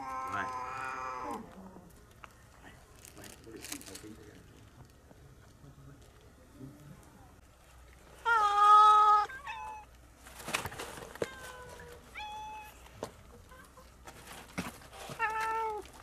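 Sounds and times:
cats meowing: 0.0 - 1.6, 8.2 - 10.0, 11.2 - 12.9, 15.1 - 16.0.

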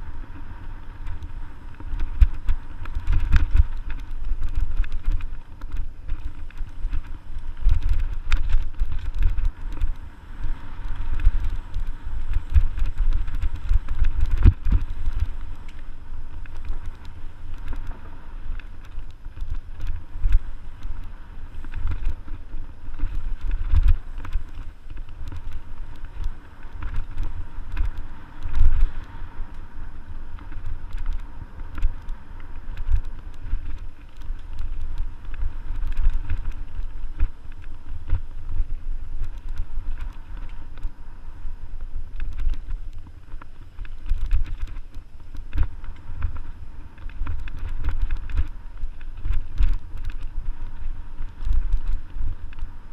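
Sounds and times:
bike riding rumble: 0.0 - 52.9
bike knocks and rattles: 1.0 - 29.1.

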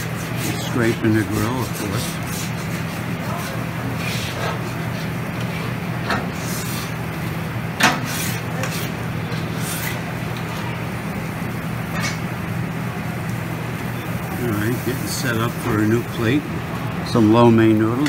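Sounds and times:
scraper scraping a steel griddle: 0.0 - 7.0, 7.8 - 10.0
steady low hum: 0.0 - 18.0.

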